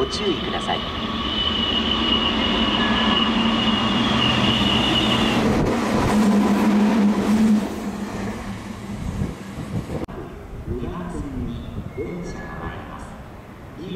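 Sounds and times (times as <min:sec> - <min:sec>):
train wheels rushing on rail: 0:00.0 - 0:10.1
train high whine: 0:00.0 - 0:13.9.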